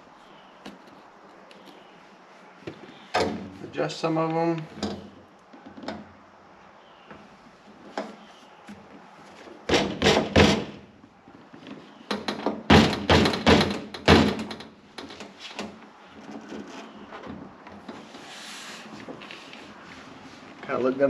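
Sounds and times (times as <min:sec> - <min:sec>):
hand thumping door panel: 0:12.1 - 0:14.7.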